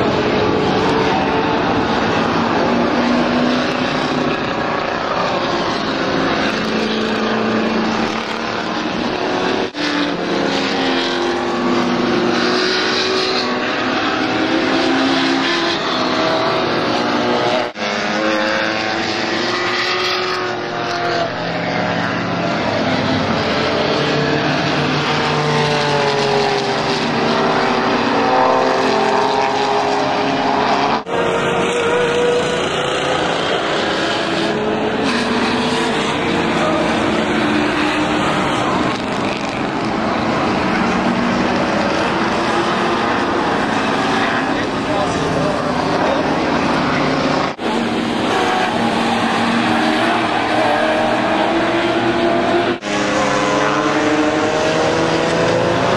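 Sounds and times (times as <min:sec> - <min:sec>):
race car engines: 0:00.0 - 0:55.9.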